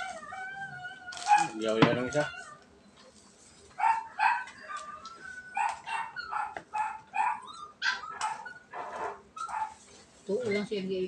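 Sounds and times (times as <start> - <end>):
dog yipping: 0.0 - 2.6, 3.7 - 10.8.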